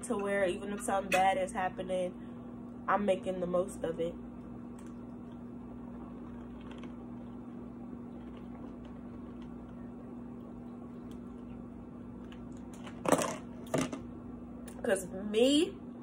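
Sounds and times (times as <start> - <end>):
box fan humming: 0.0 - 16.0.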